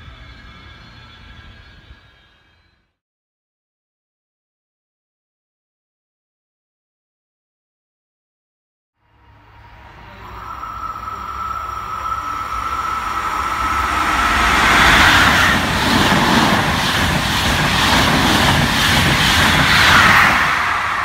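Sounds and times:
passenger train passing: 0.0s - 2.9s, 9.0s - 21.0s
thin high tone ringing: 9.2s - 15.8s.

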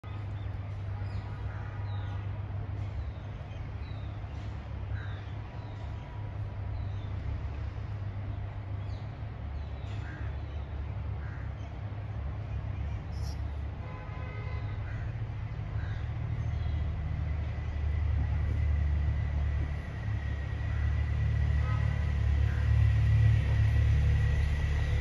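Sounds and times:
small birds chirping: 2.8s - 13.7s
crows cawing: 14.8s - 16.2s.

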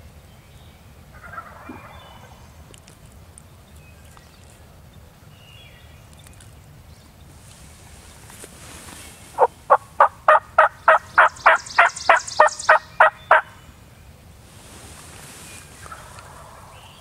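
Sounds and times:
loud turkey yelps: 1.1s - 2.2s, 9.4s - 13.5s.

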